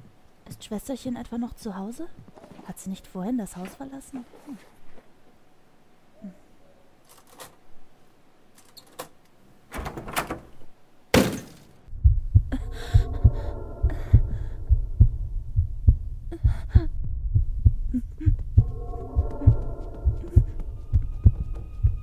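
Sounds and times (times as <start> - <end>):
droning tone: 11.9 - 16.4, 17.1 - 22.0
heartbeat pulsing: 11.9 - 22.0.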